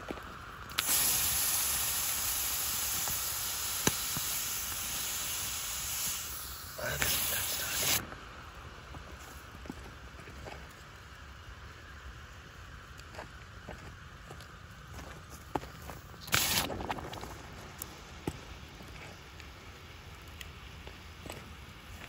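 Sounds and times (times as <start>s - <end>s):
hot rock hissing in water: 0.7s - 8.0s.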